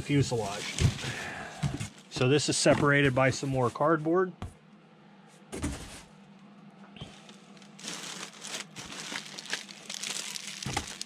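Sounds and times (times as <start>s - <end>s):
plastic packaging crinkling: 0.3s - 1.3s, 7.4s - 11.0s.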